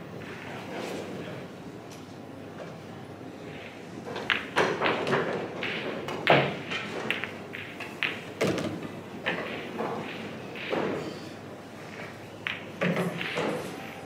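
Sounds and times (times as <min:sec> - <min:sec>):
pool balls clicking: 0:03.5 - 0:11.2, 0:11.8 - 0:14.0.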